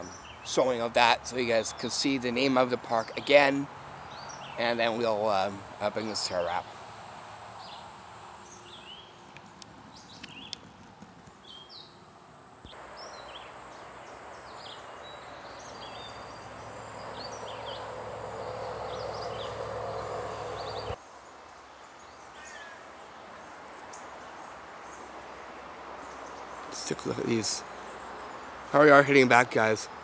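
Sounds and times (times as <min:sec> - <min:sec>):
small birds chirping: 0:00.0 - 0:06.8, 0:07.6 - 0:12.0, 0:12.7 - 0:21.0
steady rushing noise: 0:14.2 - 0:21.0.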